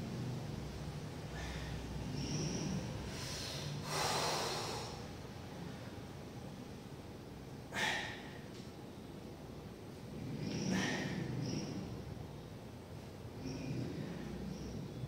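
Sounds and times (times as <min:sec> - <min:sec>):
person breathing hard: 0:01.3 - 0:05.1, 0:07.7 - 0:08.4.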